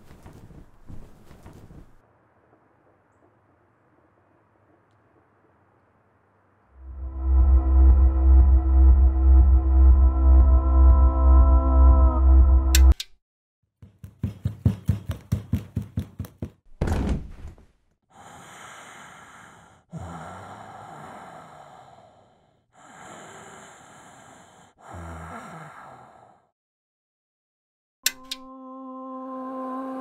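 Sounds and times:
heavy breathing: 18.1s - 26.5s.

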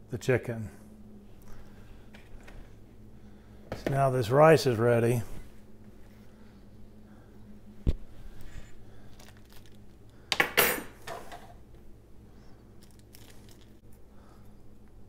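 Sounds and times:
small clicks and rustles: 9.1s - 9.9s, 12.8s - 14.0s
crinkling clatter: 9.1s - 10.0s, 12.8s - 13.8s.

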